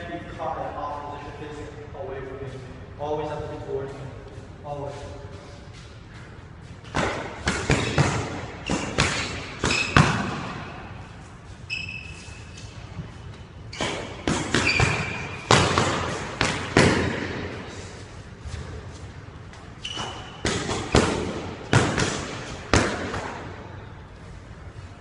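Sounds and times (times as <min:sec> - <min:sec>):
boxing gloves punching: 0:06.8 - 0:10.7, 0:13.8 - 0:17.6, 0:20.4 - 0:23.5
sneakers squeaking on wooden floor: 0:07.6 - 0:16.2, 0:18.4 - 0:21.0.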